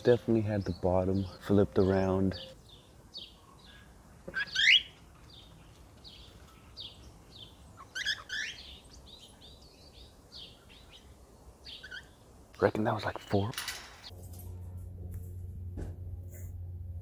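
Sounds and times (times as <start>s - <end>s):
rising bird calls: 0.7s - 12.3s
cockatiels chirping: 4.3s - 5.0s, 7.8s - 9.3s.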